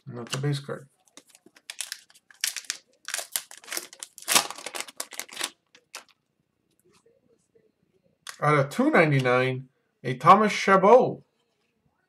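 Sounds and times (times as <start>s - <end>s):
foil wrapper crinkling and tearing: 1.2s - 6.2s.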